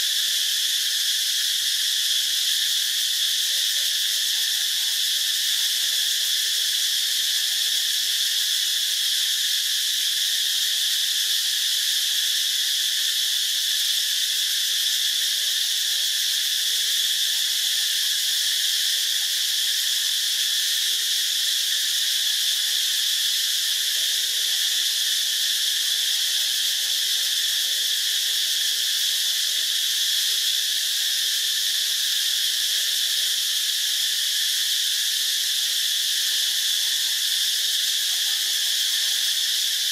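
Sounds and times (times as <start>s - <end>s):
insect chorus: 0.0s - 39.9s.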